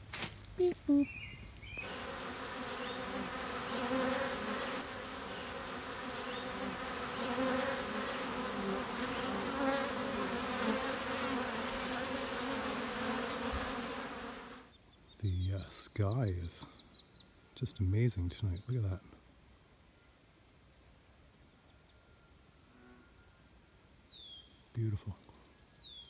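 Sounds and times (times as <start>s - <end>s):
bees buzzing: 0.6s - 14.7s.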